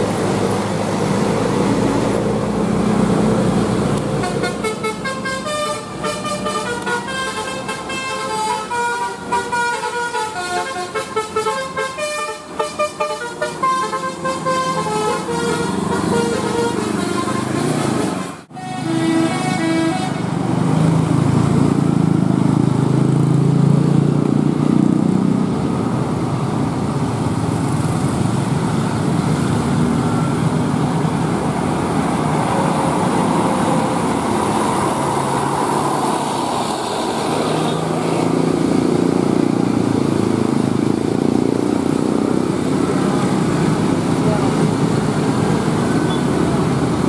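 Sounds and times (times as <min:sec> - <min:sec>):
bus engine passing: 0:00.0 - 0:47.0
motorcycles and scooters passing: 0:19.3 - 0:47.0.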